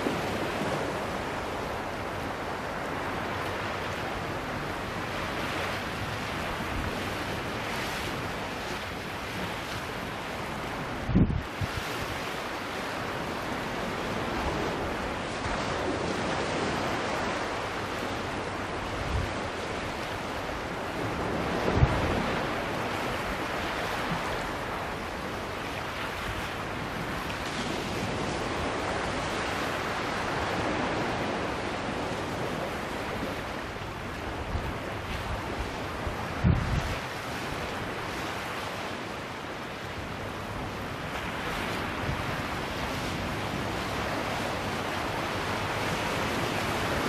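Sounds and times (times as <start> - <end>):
wind buffeting microphone: 0.0 - 38.6
waves breaking on rocks: 0.0 - 47.0.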